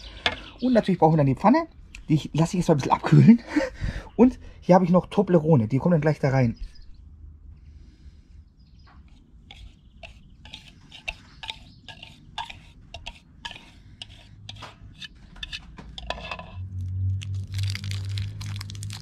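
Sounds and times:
utensil scraping mixing bowl: 9.0 - 16.6.

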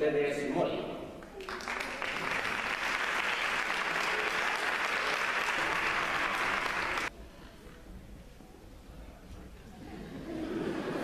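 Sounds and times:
audience applauding: 1.2 - 7.1.

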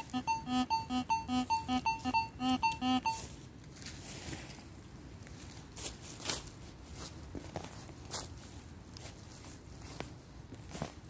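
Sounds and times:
rhythmic pitched tones: 0.0 - 3.2
dry leaf litter rustling: 3.3 - 11.0.

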